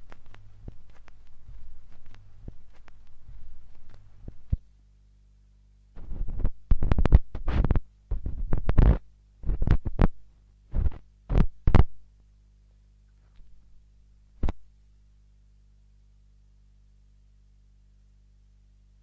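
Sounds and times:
vinyl record clicks: 0.0 - 4.7, 6.0 - 12.0, 14.4 - 14.7
low hum: 0.0 - 19.0.

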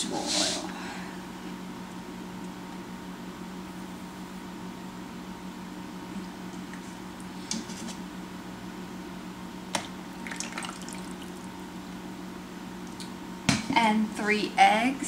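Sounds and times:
steady low hum: 0.0 - 15.0
oil pouring: 10.2 - 11.4.

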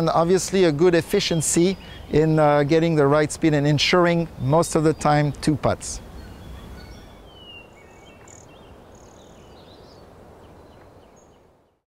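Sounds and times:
steady background hiss: 0.0 - 11.8
bird chirps and calls: 1.1 - 2.6, 4.7 - 11.4.

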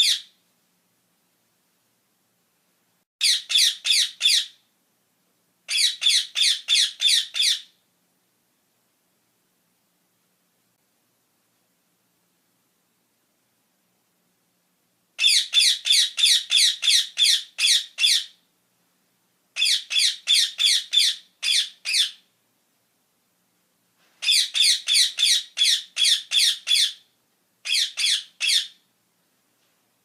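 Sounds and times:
parakeets squawking: 3.2 - 4.6, 5.7 - 7.7, 19.6 - 22.2, 24.2 - 27.0, 27.7 - 28.8.

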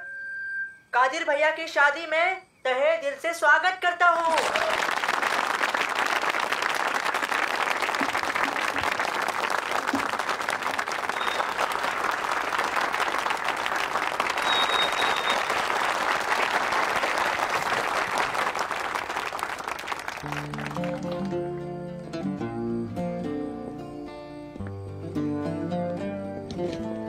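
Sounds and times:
crowd applauding: 4.2 - 21.5.

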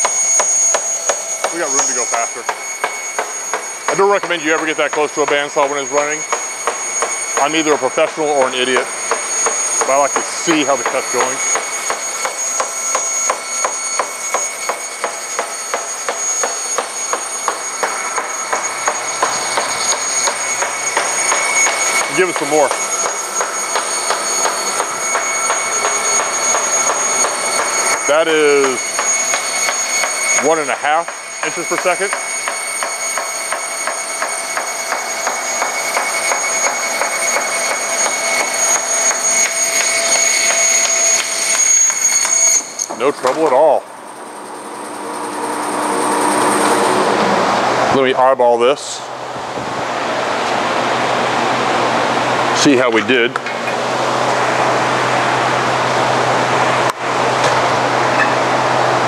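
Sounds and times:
regular saw ticking: 0.0 - 45.2
bandsaw whining: 0.0 - 59.0.

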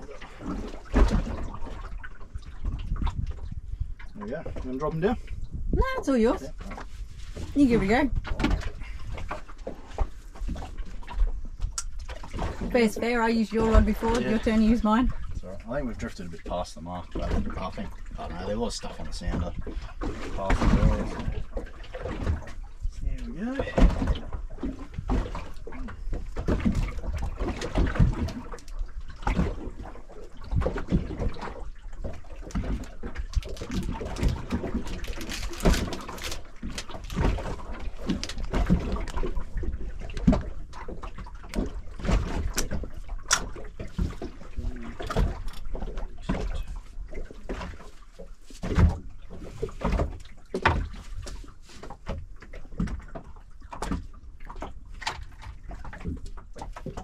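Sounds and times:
water lapping against hull: 0.0 - 57.0
boat knocks: 48.6 - 57.0.

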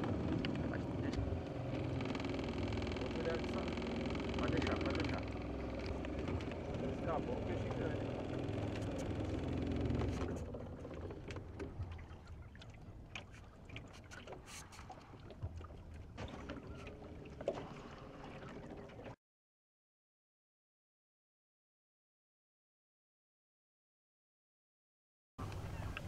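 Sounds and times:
clicks against boat: 0.0 - 17.9
boat motor humming: 0.0 - 19.2, 25.4 - 26.0
water lapping: 0.0 - 19.2, 25.4 - 26.0.

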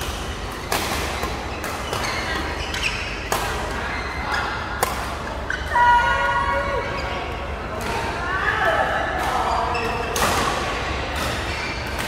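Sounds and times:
rackets hitting shuttlecock: 0.0 - 3.8.

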